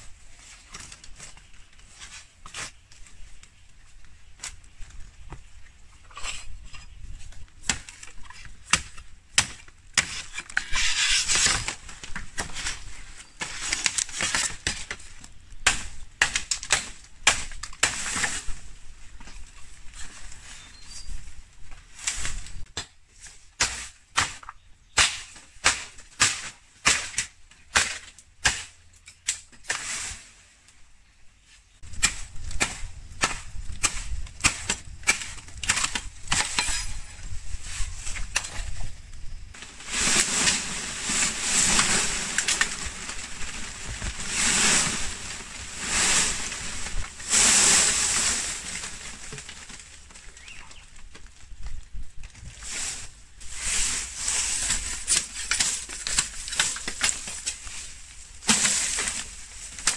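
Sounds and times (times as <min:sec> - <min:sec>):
rustling: 0:00.0 - 0:16.7, 0:31.4 - 0:59.9
blade chopping bamboo: 0:23.6 - 0:29.9.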